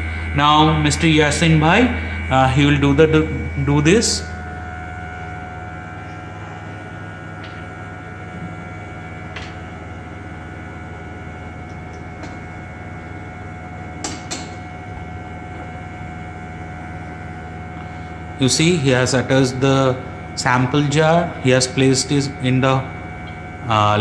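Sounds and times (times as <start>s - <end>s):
steady high tones: 0.0s - 9.3s
electrical hum of lab equipment: 0.0s - 24.0s.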